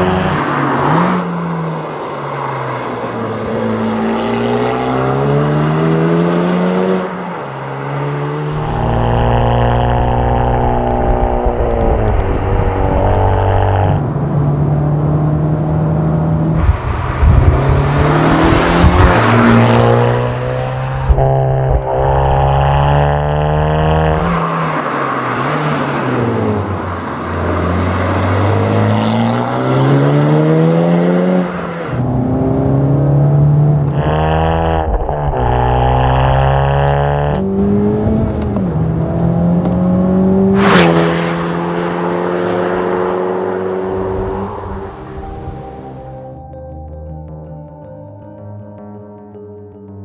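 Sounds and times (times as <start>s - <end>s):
car engine accelerating hard: 2.4s - 46.0s.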